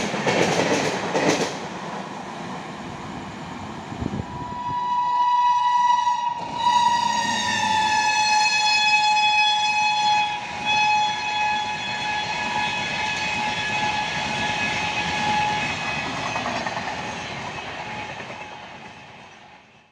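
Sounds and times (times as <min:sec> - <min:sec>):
train coaches clattering on rails: 0:00.0 - 0:02.1, 0:11.6 - 0:19.8
train horn: 0:04.3 - 0:16.6.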